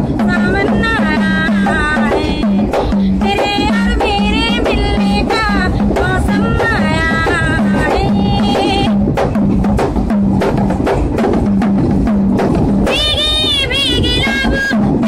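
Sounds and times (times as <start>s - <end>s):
frame drum beat: 0.0s - 15.0s
woman singing in high voice: 0.2s - 9.0s, 12.8s - 15.0s.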